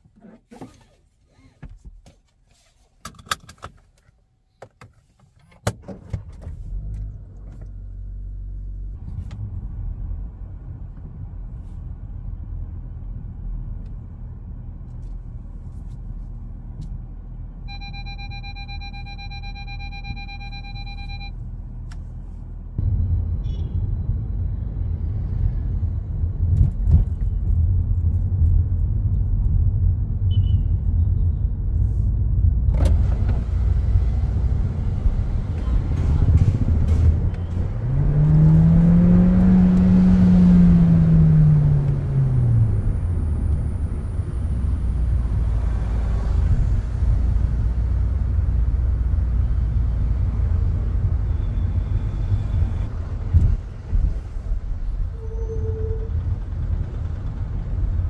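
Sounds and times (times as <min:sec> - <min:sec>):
road noise: 0:05.6 - 0:58.0
car engine accelerating: 0:31.6 - 0:51.9.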